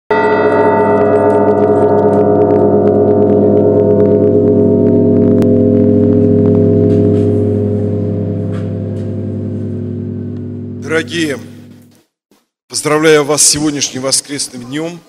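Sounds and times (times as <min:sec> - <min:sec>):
deep bells ringing: 0:00.1 - 0:11.6.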